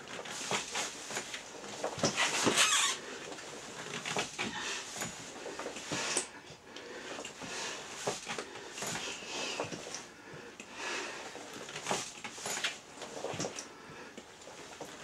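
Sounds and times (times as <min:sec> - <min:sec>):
rubber apron rustling: 0:00.0 - 0:06.3.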